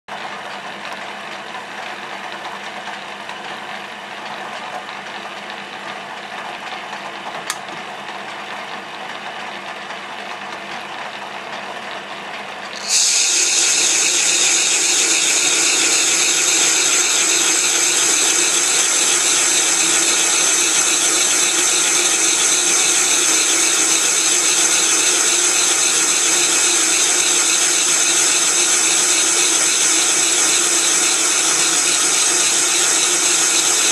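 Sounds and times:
lathe gear whine: 12.7 - 33.9
lathe tool cutting iron hiss: 12.8 - 33.9.

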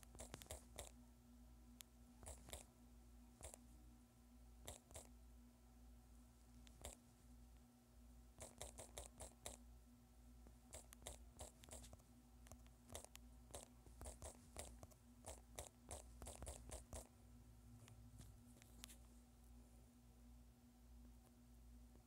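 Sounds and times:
touchscreen typing taps: 0.0 - 0.9
faint steady hum: 0.0 - 22.0.

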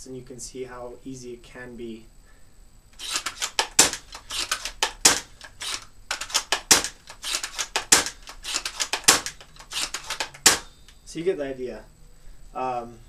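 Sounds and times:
rifle bolt clicking and rattling: 3.0 - 10.7
sharp piston snap: 3.0 - 11.0.

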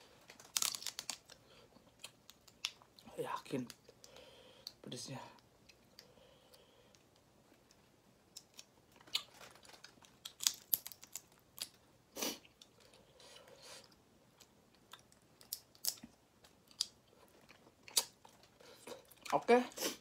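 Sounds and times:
shrimp shells cracking: 0.3 - 1.4, 8.3 - 11.8, 15.0 - 17.0
wet chewing: 12.4 - 19.3.

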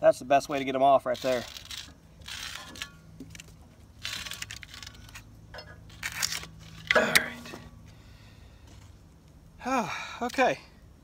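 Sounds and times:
rubber belt tearing and scraping: 1.0 - 5.3, 5.9 - 7.3.

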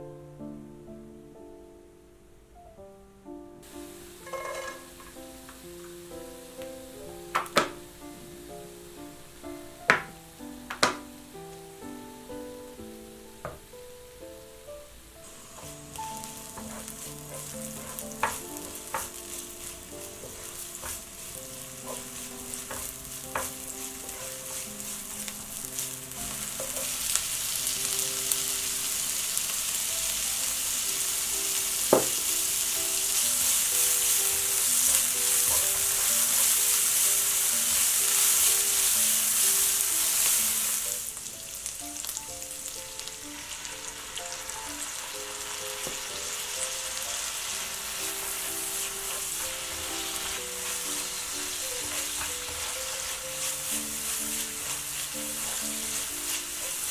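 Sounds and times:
soft background music: 0.0 - 56.9
food sizzling in hot oil: 3.6 - 56.9
spatula tapping pan: 4.1 - 6.0, 7.3 - 7.9, 9.9 - 11.1, 15.2 - 27.4, 31.9 - 40.0, 47.8 - 56.9.

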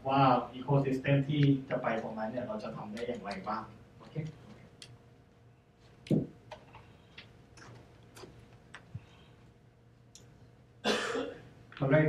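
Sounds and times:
faint steady hum: 0.0 - 12.0
small clicks and light knocks: 2.9 - 5.0.

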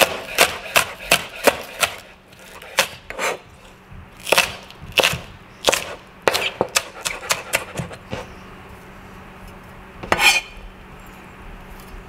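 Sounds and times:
knife chopping on cutting board: 0.0 - 2.0.

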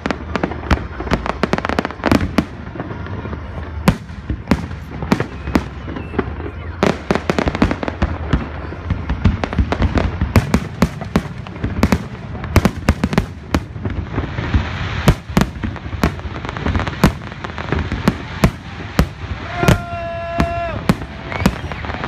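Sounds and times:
fireworks hiss: 7.1 - 22.0.

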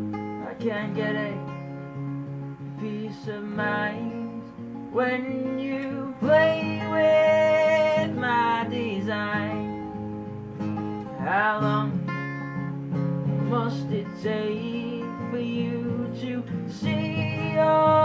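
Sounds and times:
acoustic guitars strummed: 0.0 - 18.0
man singing: 2.8 - 9.7, 13.4 - 18.0.

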